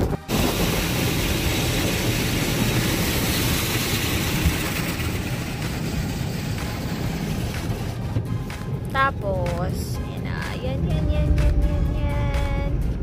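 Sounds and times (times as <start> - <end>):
water spraying on car: 0.0 - 8.9
car wash machinery rumble: 0.0 - 13.0.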